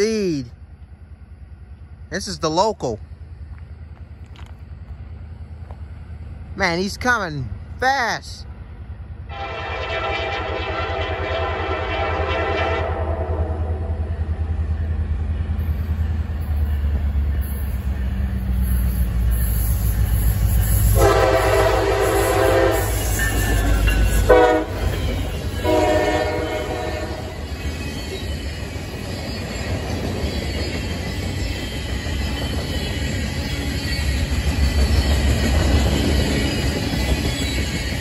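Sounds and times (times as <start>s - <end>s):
diesel locomotive rumble: 0.0s - 38.0s
train horn blasts: 9.3s - 14.1s, 20.9s - 23.4s, 24.1s - 25.0s, 25.6s - 27.4s.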